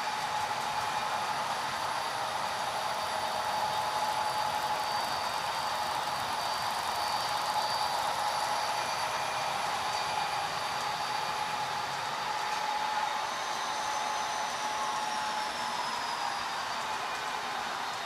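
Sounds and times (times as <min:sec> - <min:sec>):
model train motors whirring: 0:00.0 - 0:18.0
thin whining tones: 0:00.0 - 0:18.0.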